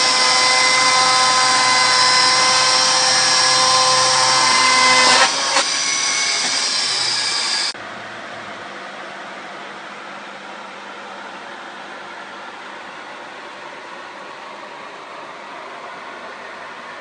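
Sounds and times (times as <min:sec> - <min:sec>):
electric chainsaw cutting log: 0:00.0 - 0:07.8.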